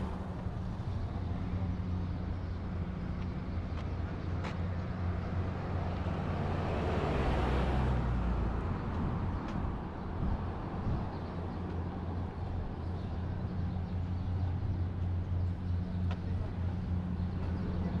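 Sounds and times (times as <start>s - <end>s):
road traffic engines: 0.0s - 18.0s
vehicle passing: 5.6s - 8.8s.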